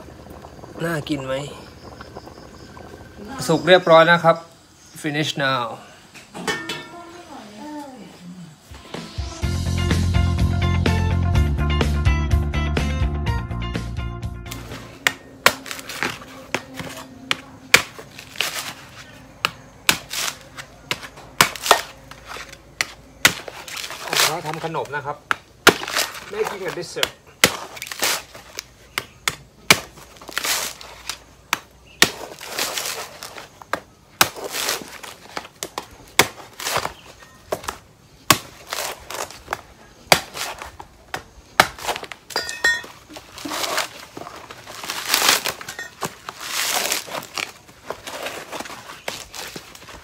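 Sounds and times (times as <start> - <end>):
husk rasping and crackling: 0.0 - 3.6, 14.5 - 50.0
machete chopping coconut husk: 14.5 - 42.5, 43.1 - 49.9.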